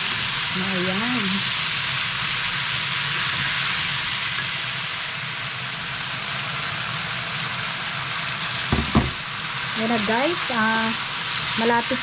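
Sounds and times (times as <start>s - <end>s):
food sizzling in a frying pan: 0.0s - 12.0s
wooden spatula knocking on pan: 8.7s - 9.2s.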